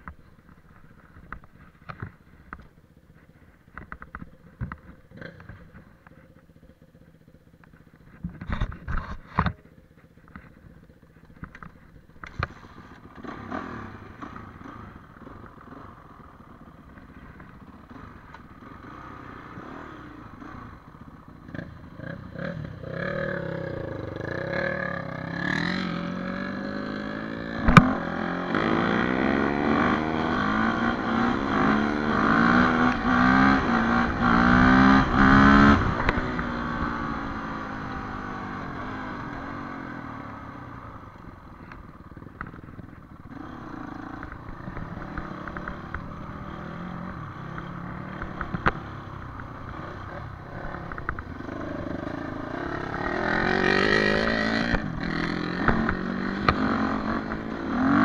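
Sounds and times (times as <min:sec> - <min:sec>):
dirt bike engine revving: 0:21.5 - 0:39.6, 0:43.3 - 0:58.0.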